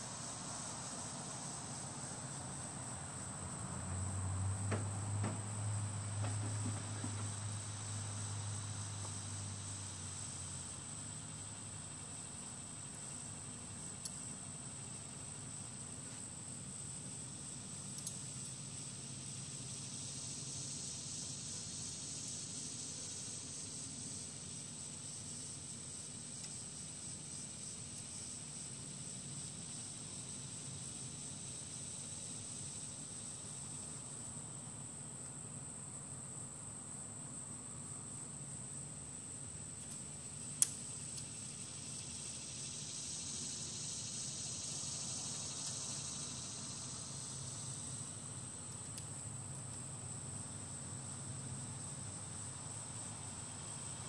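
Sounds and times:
high-pitched insect trill: 0.0 - 54.0
small ticks: 13.8 - 14.4, 17.8 - 18.6, 26.3 - 26.7, 39.8 - 48.0, 48.6 - 49.9.

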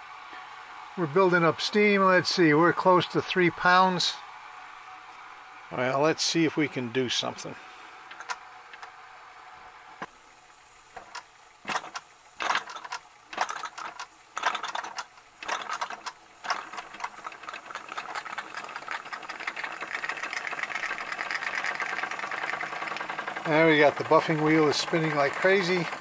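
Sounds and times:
toy steam engine chuffing: 11.0 - 26.0.

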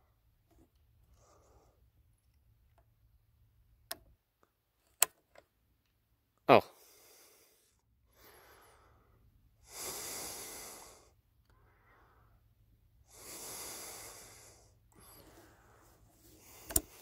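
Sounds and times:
heavy breathing close to microphone: 6.7 - 17.0.

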